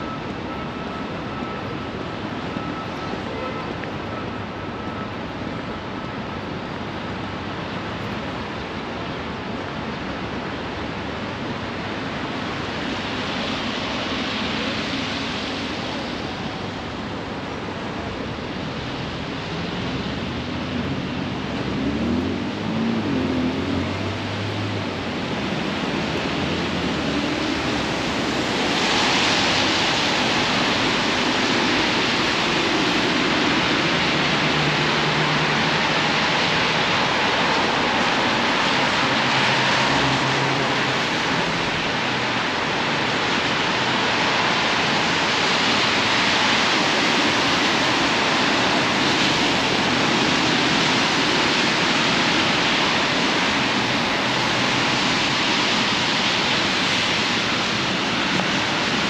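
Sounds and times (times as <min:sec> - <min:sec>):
car tyres on wet streets: 0:00.0 - 0:59.0
low hum of passing traffic: 0:00.0 - 0:59.0.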